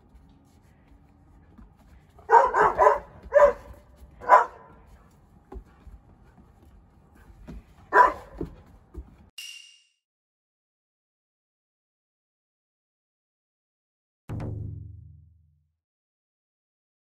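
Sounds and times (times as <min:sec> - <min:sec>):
dog barking: 0:02.2 - 0:05.0, 0:07.9 - 0:08.6.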